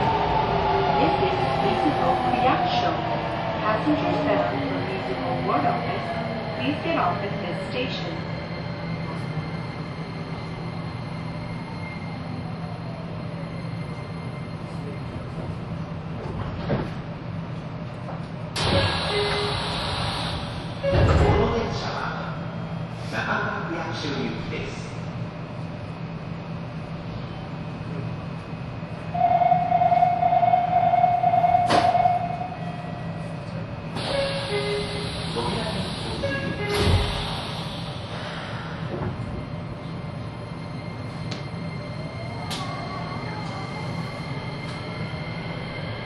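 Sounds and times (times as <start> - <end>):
subway train rumble: 0.0 - 46.0
loud steady high tone: 29.1 - 32.8.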